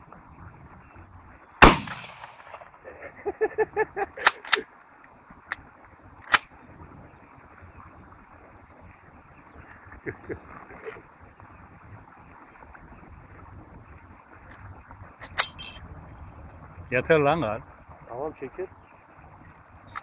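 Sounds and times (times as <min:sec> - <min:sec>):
shotgun shot: 0:01.6 - 0:02.8
man laughing: 0:02.8 - 0:04.6, 0:09.8 - 0:11.0.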